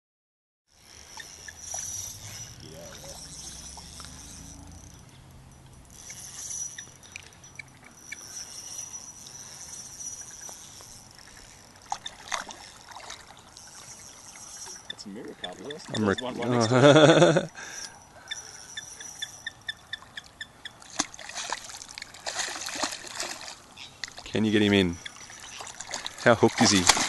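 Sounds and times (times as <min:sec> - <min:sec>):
fish thrashing and splashing: 0:11.1 - 0:14.9, 0:20.8 - 0:24.4, 0:25.0 - 0:27.0.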